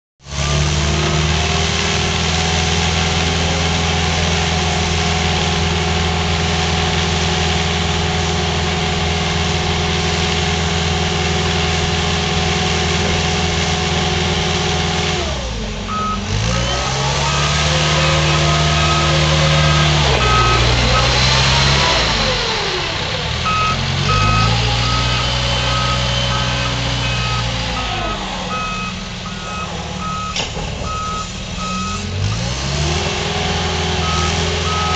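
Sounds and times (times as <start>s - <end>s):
diesel truck engine idling: 1.4s - 34.9s
short repeated beeps: 15.9s - 16.2s, 23.5s - 32.0s.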